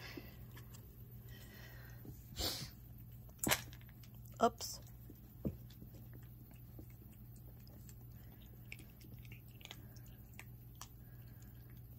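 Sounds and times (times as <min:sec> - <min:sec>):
puppy chewing dry kibble: 0:02.9 - 0:11.9.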